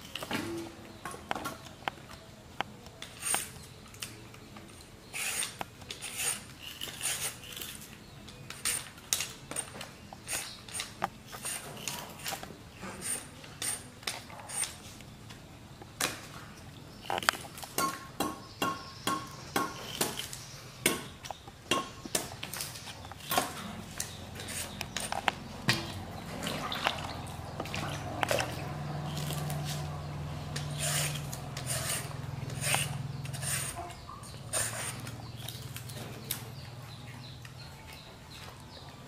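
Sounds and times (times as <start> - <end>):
vegetable peeler scraping fruit skin: 3.0 - 3.7, 5.0 - 14.9, 19.7 - 20.5, 22.4 - 26.0, 27.6 - 29.9, 30.5 - 36.3
monkey gnawing sugarcane: 17.0 - 17.8, 26.0 - 36.4.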